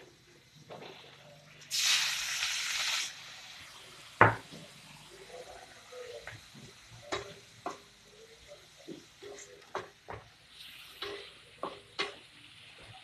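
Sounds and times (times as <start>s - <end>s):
faint sizzle: 0.0s - 13.0s
spatula knocking against pan: 11.0s - 12.2s.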